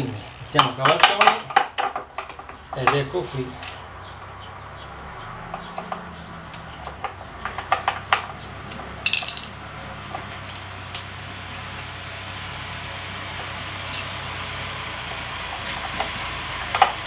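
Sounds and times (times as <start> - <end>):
screws clinking against metal: 8.7 - 9.6.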